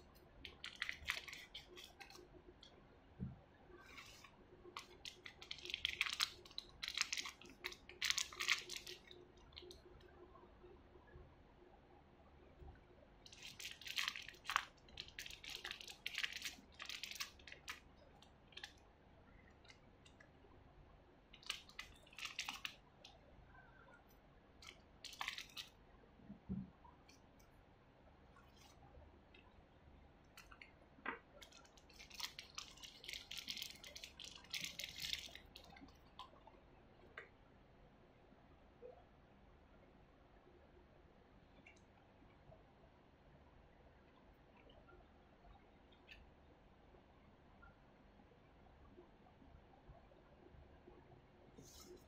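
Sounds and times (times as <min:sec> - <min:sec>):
plastic packaging crinkling: 0:00.4 - 0:02.2, 0:04.0 - 0:09.7, 0:13.3 - 0:17.9, 0:21.4 - 0:22.8, 0:24.6 - 0:25.7, 0:31.4 - 0:35.9.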